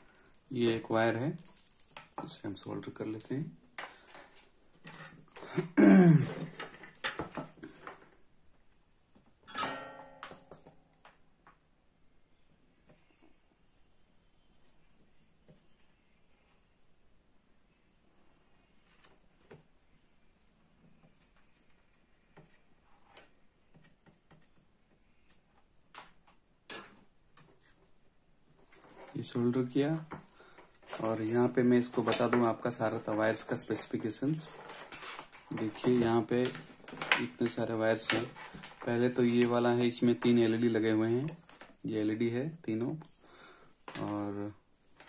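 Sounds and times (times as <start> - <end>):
clicks and rustles of handled wires: 0.0 - 5.6, 6.3 - 9.4, 20.8 - 45.0.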